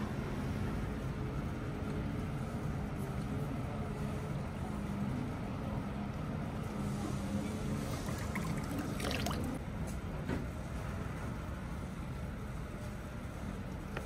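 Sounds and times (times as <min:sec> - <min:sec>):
water trickling into stone basin: 0:07.8 - 0:09.6.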